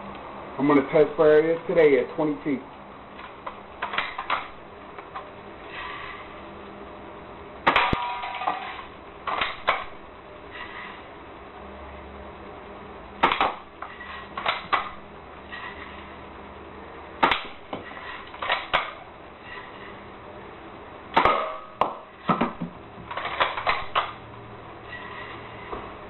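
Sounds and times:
bb gun firing: 0:07.6 - 0:08.3, 0:13.2 - 0:13.7, 0:17.2 - 0:17.6, 0:21.1 - 0:22.6.

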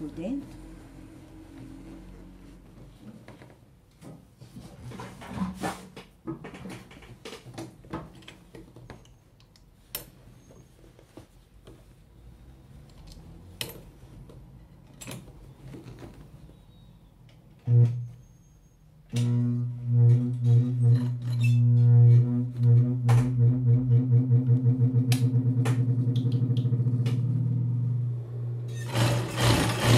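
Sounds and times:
industrial sewing machine running: 0:28.7 - 0:29.9.

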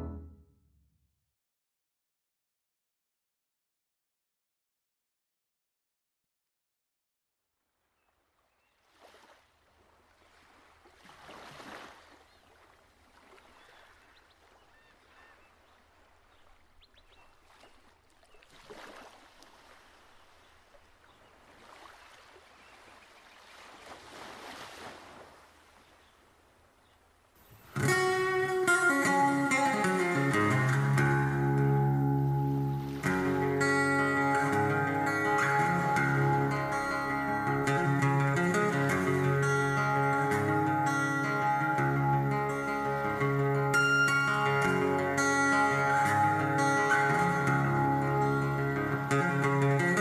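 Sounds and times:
plucked guitar music: 0:00.0 - 0:00.5, 0:27.6 - 0:50.0.

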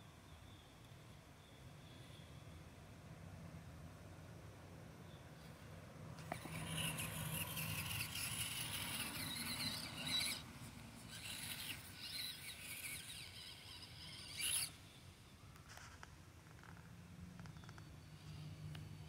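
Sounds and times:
electric motor and gearbox whining: 0:06.2 - 0:19.0.

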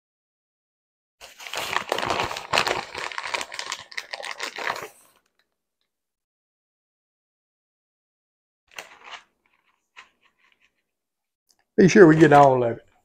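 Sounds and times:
plastic bag crinkling: 0:01.2 - 0:05.4.

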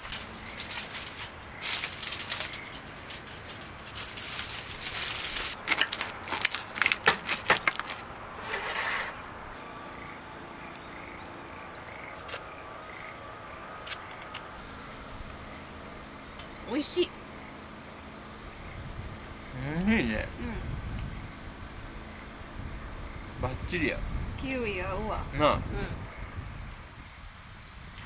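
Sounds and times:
crisp pizza crust crunching: 0:00.0 - 0:09.1
aluminium foil crinkling: 0:00.0 - 0:09.2.

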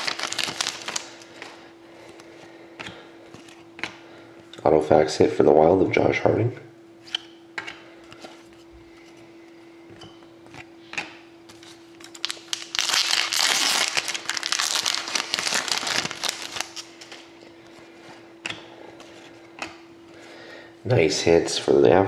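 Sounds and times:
foil wrapper tearing and crinkling: 0:00.0 - 0:01.2, 0:12.1 - 0:17.2.

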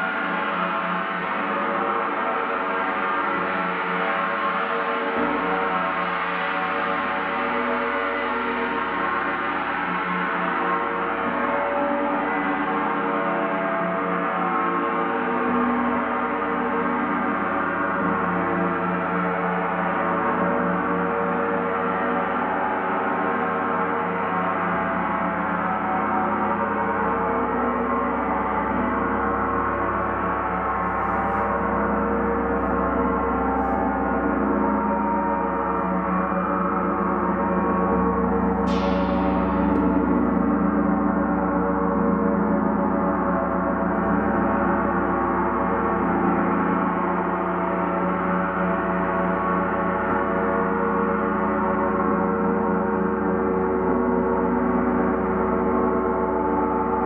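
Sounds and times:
large gong ringing: 0:20.4 - 0:57.0.

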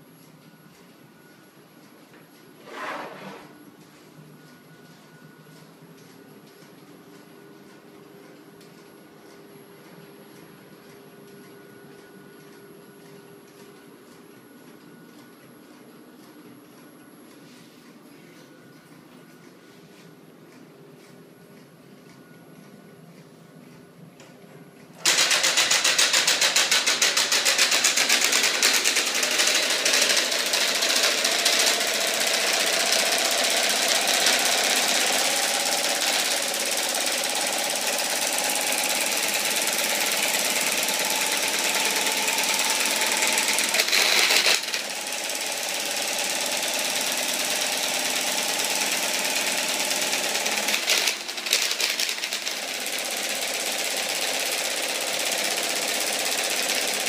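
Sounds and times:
magnet engine fast rattle: 0:25.0 - 0:38.4, 0:39.0 - 0:44.9, 0:50.0 - 0:52.7.

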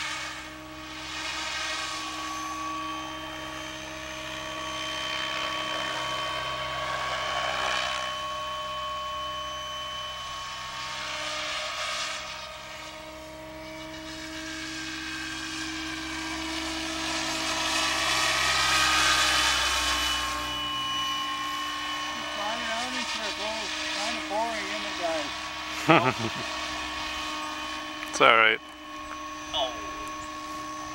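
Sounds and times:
helicopter drive whine: 0:00.0 - 0:30.9
rotor blades whooshing: 0:14.1 - 0:30.9.

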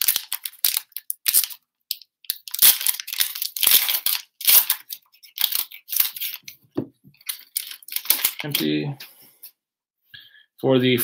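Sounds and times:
foil wrapper tearing and crinkling: 0:00.0 - 0:06.6, 0:07.2 - 0:08.7.

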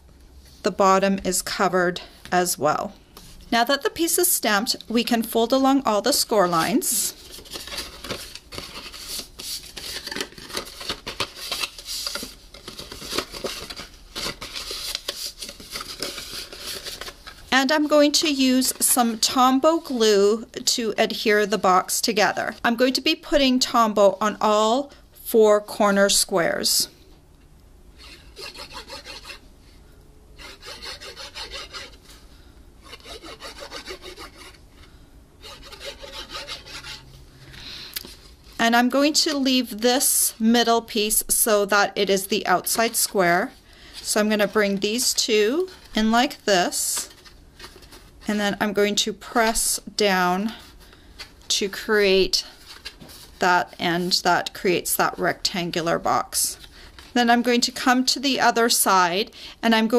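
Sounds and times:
cardstock being folded and creased: 0:07.2 - 0:17.5.

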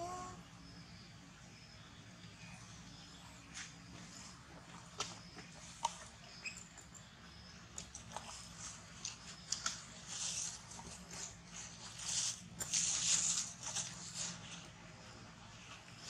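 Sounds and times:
monkey eating fruit: 0:04.0 - 0:16.0.

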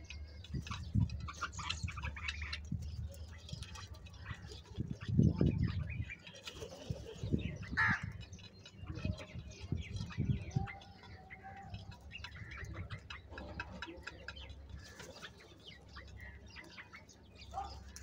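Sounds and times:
birds pecking at bowls: 0:00.0 - 0:18.0
crow calls and chirps: 0:07.4 - 0:18.0.

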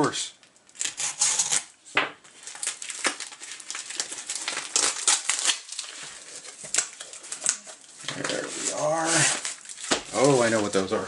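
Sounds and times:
cardboard packaging crinkling: 0:02.3 - 0:11.0.

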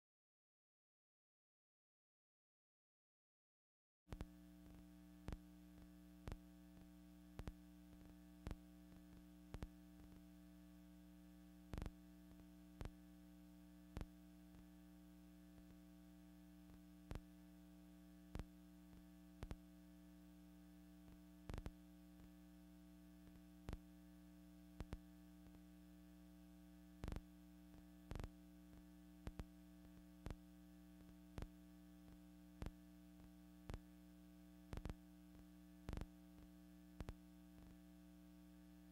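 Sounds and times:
faint electrical hum: 0:04.1 - 0:38.9.

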